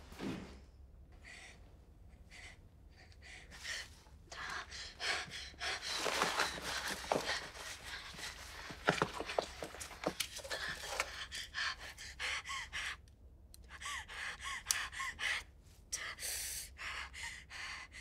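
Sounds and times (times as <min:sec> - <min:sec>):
rustling movement: 0:05.5 - 0:11.1.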